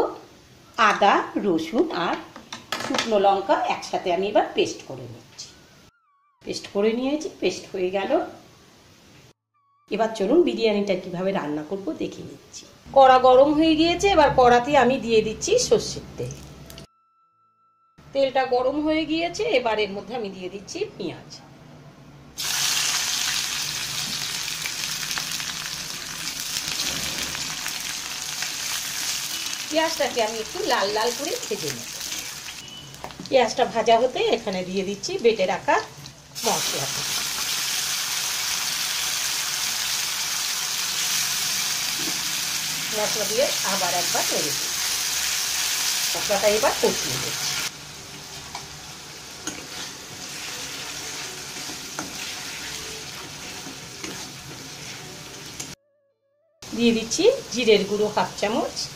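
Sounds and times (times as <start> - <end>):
onions sizzling in oil: 22.4 - 33.7, 35.3 - 55.8
spatula stirring: 49.4 - 55.3.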